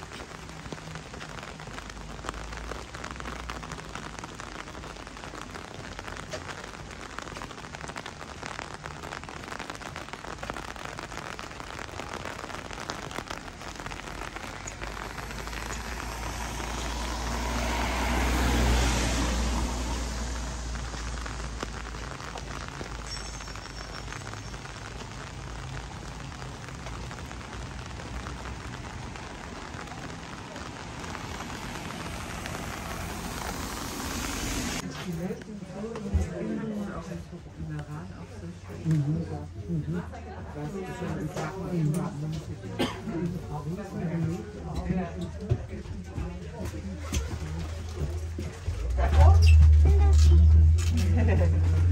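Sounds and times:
rain patter: 0.0 - 51.9
vehicle passing: 14.8 - 21.7, 30.1 - 34.8.

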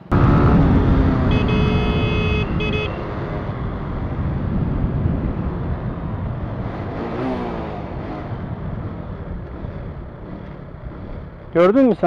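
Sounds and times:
wind rush: 0.0 - 9.3
motorcycle engine running: 0.0 - 12.0
horn sounding: 0.1 - 3.2.

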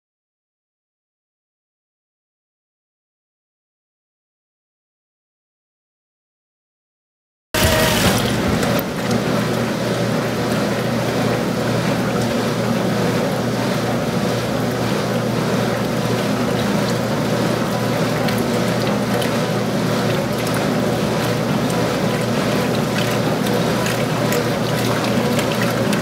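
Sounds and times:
washing machine motor hum: 7.6 - 26.0
water sloshing and churning: 7.6 - 26.0.

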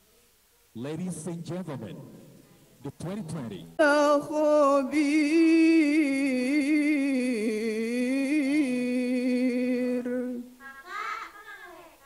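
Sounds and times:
person chanting a recitation: 2.8 - 10.9.

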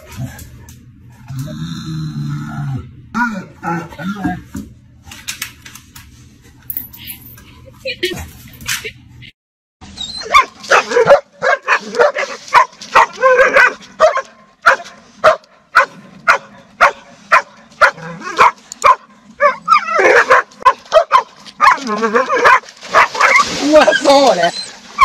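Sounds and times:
dog barking: 10.2 - 23.5.

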